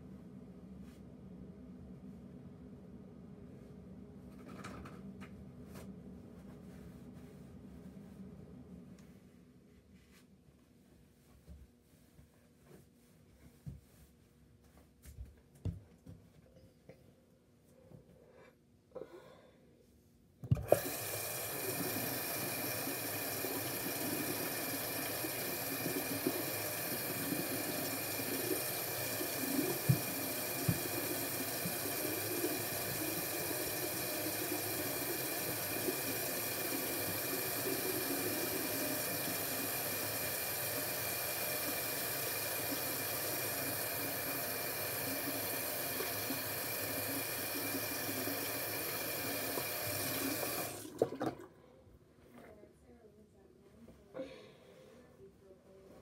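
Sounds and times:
water running into sink: 0:20.5 - 0:51.6.

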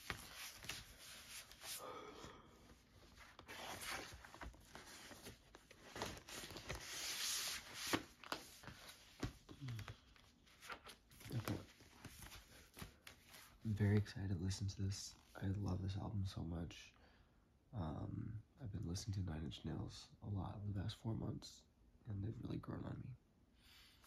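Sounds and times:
record sleeves rustling and sliding: 0:00.0 - 0:01.8, 0:02.6 - 0:14.1.

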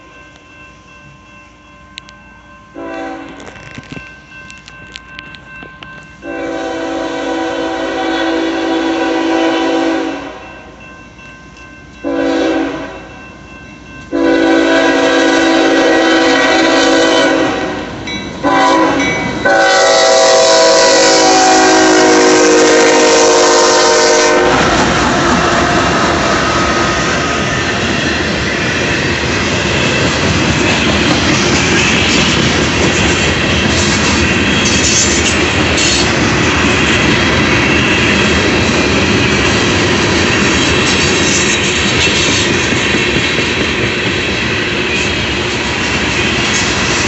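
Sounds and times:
train passing with wheel noise: 0:00.0 - 0:47.0
locomotive air horn blasts: 0:02.8 - 0:03.5, 0:06.2 - 0:10.6, 0:12.0 - 0:13.1, 0:14.1 - 0:24.8.

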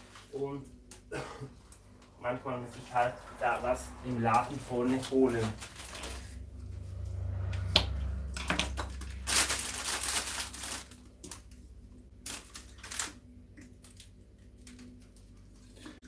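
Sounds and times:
plastic foil crinkling: 0:04.6 - 0:06.4, 0:08.5 - 0:15.9.

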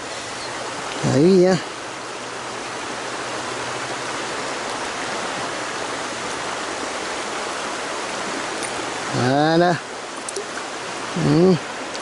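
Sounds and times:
river rushing over stones: 0:00.0 - 0:12.0.

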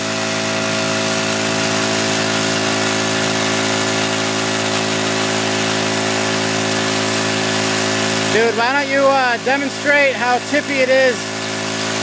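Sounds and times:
small engine running steadily: 0:00.0 - 0:12.0.

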